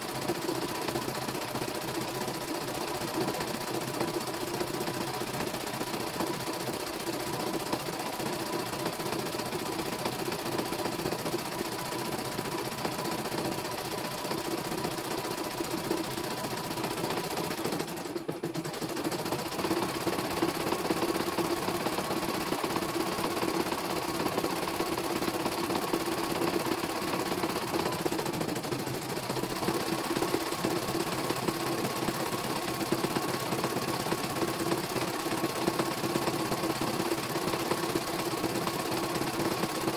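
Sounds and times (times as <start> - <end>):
embroidery machine stitching: 0.0 - 39.9.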